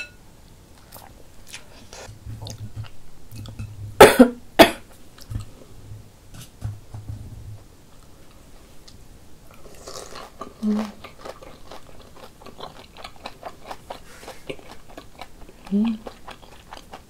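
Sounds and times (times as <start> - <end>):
woman coughing: 4.0 - 4.8.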